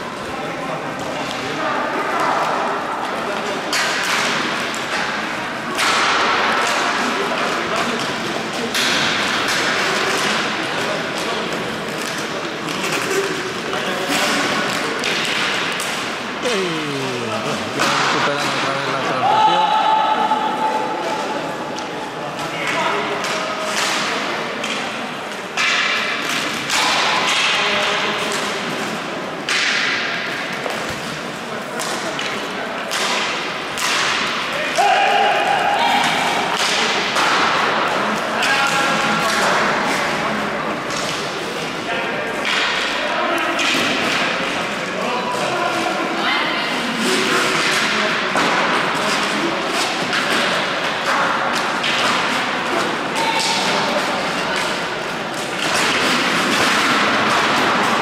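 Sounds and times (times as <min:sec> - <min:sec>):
steady rush of hall noise: 0:00.0 - 0:58.0
hockey sticks striking ball: 0:03.6 - 0:16.6, 0:17.7 - 0:19.3, 0:21.8 - 0:24.9, 0:25.5 - 0:28.7, 0:29.4 - 0:40.2, 0:42.4 - 0:44.7, 0:47.2 - 0:58.0.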